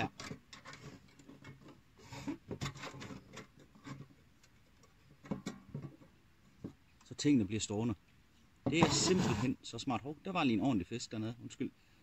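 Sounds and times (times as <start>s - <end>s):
metal bars scraping on metal: 8.7s - 9.5s.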